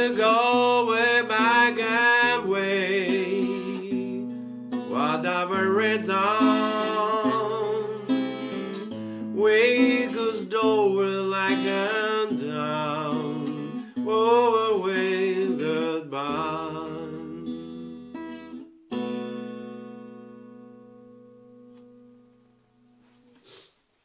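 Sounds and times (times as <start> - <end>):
person singing wordless line: 0.0 - 18.2
acoustic guitar strumming: 0.0 - 23.2.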